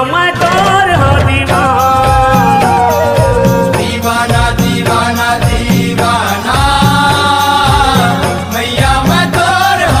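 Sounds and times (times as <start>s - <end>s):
person singing devotional song: 0.0s - 10.0s
strong drum beat: 0.4s - 10.0s
instruments playing: 2.2s - 6.8s.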